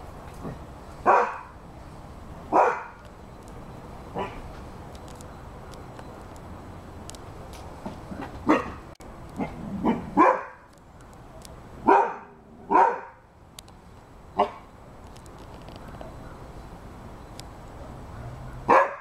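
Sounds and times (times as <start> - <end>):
dog barking: 1.0 - 1.5, 2.5 - 3.0, 4.2 - 4.4, 8.5 - 8.8, 9.4 - 10.6, 11.8 - 13.2, 14.4 - 14.7, 18.1 - 19.0.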